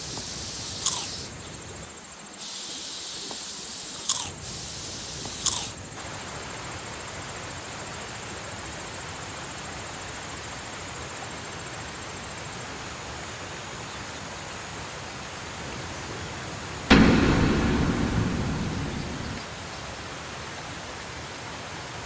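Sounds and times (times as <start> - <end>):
loud hit: 16.9 - 19.7.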